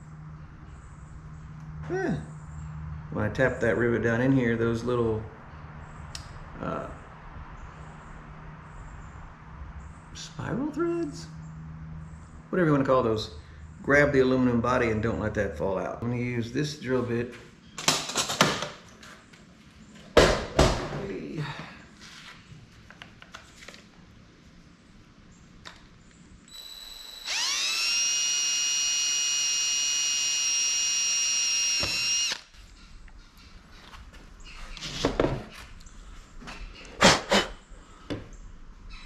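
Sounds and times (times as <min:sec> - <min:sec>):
drill bit drilling into metal: 0:26.5 - 0:32.4
cordless drill whining: 0:26.5 - 0:32.5.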